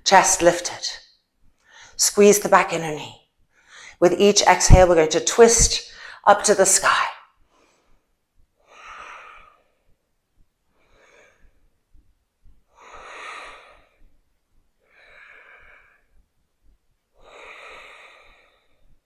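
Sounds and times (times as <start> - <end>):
woman breathing: 1.6 - 2.0, 3.5 - 4.0, 5.9 - 6.3, 7.4 - 12.0, 12.6 - 16.2, 17.1 - 19.0.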